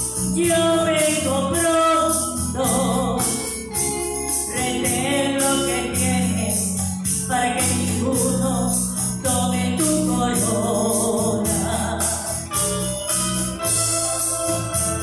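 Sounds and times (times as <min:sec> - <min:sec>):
electronic organ: 0:00.0 - 0:15.0
woman singing a hymn: 0:00.2 - 0:03.7, 0:04.4 - 0:12.5.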